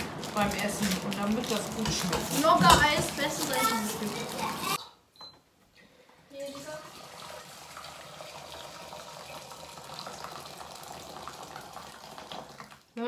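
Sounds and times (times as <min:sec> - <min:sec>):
water pouring into metal pot: 0:06.4 - 0:12.9.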